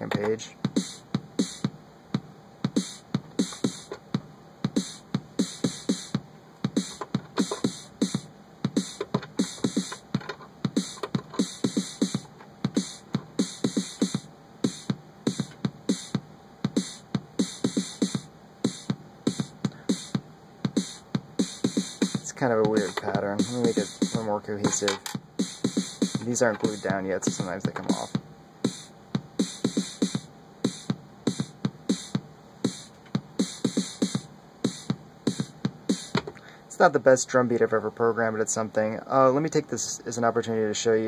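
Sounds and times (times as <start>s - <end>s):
electronic kick drum thumps: 0.0s - 36.5s.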